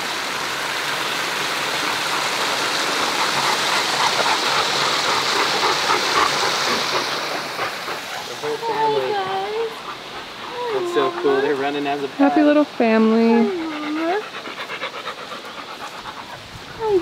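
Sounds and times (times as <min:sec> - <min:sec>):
waterfall rushing and splashing: 0:00.0 - 0:12.8.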